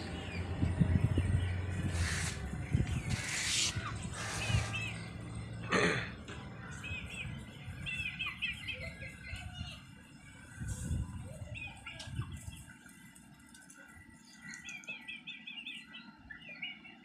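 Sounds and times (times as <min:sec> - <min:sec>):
chicks peeping: 0:00.0 - 0:05.4, 0:06.7 - 0:12.7.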